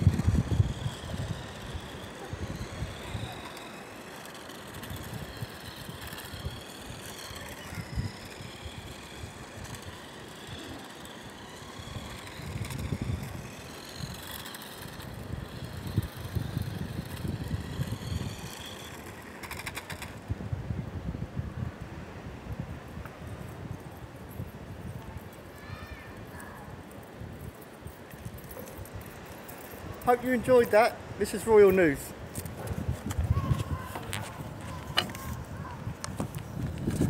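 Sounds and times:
wind rumble on microphone: 0.0s - 3.4s, 11.8s - 14.2s, 14.9s - 19.0s, 20.1s - 31.3s, 32.1s - 37.0s
toy car motor whining: 0.0s - 20.3s, 23.3s - 37.0s.

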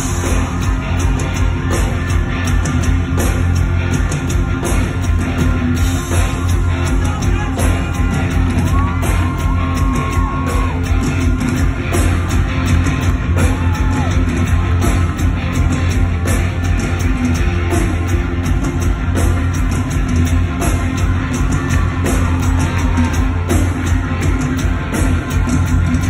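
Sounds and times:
live rock band playing: 0.0s - 26.0s.

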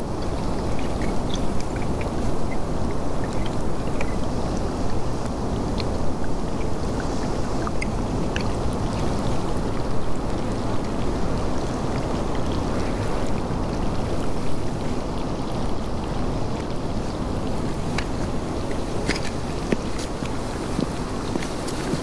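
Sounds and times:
faint ticks: 0.3s - 4.3s.

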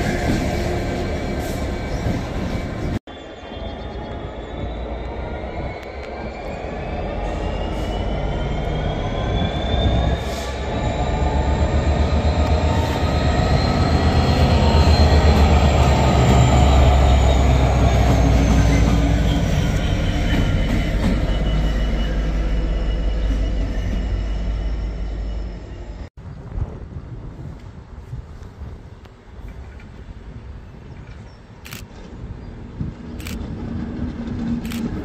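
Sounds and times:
diesel locomotive engine rumble: 0.0s - 35.0s
high wheel squeal: 1.4s - 26.1s.

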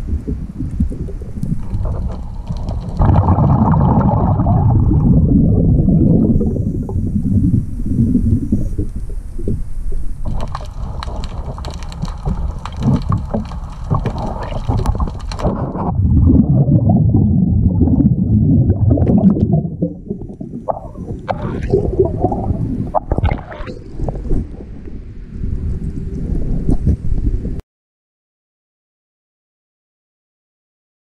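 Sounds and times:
exhaled air bubbles gurgling: 0.0s - 27.6s
underwater hiss with crackling clicks: 0.2s - 3.5s, 7.6s - 15.9s
water splashing at the surface: 0.5s - 24.8s.

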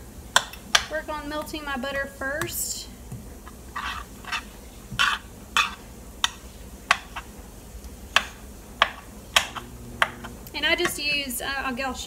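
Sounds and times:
spoon scraping and tapping a pan: 3.8s - 7.3s.

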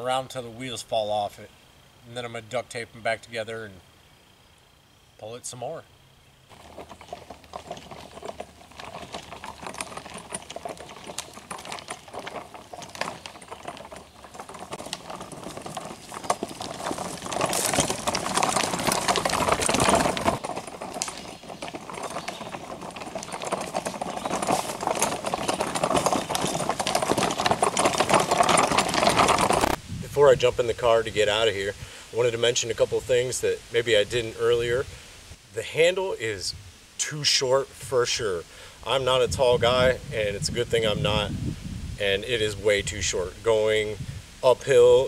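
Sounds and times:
wagon wheels rattling on dirt trail: 6.5s - 35.0s, 38.9s - 45.0s.

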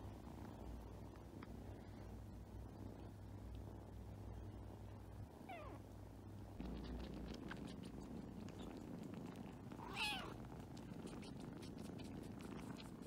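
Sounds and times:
kittens purring: 0.0s - 13.0s
kitten meow: 9.8s - 10.4s.

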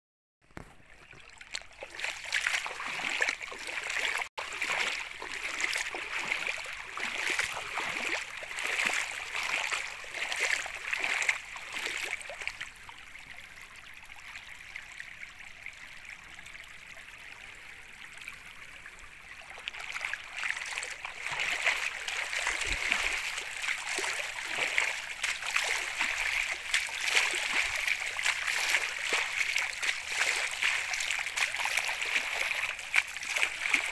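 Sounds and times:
floodwater rushing and splashing: 0.6s - 12.8s, 19.4s - 33.9s.

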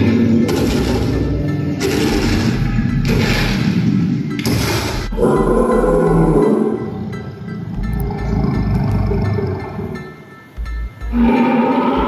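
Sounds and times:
dinosaur animatronic roar: 5.1s - 7.0s, 7.7s - 10.0s, 11.1s - 12.0s
low wavering growl: 5.1s - 10.0s, 11.1s - 12.0s.

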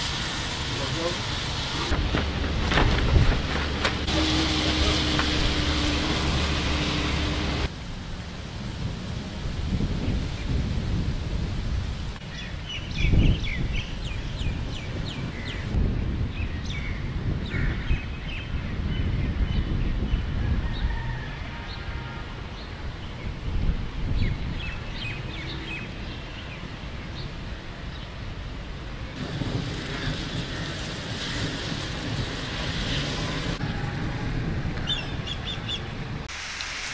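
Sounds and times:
low outdoor rumble: 0.0s - 12.2s.

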